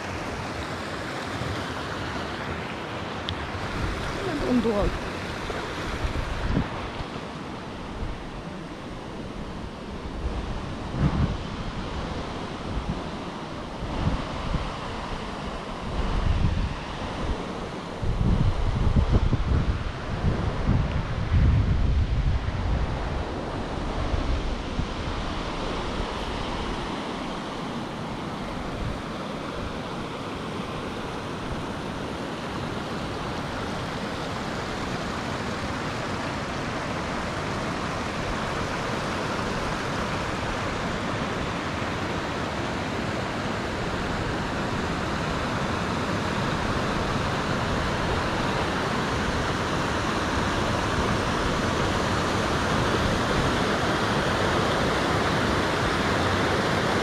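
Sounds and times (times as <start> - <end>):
water rushing over rock: 0.0 - 20.8, 22.4 - 57.0.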